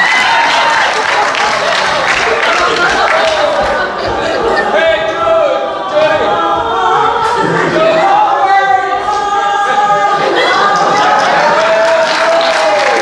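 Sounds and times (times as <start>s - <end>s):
women singing wordless song: 3.4s - 11.6s.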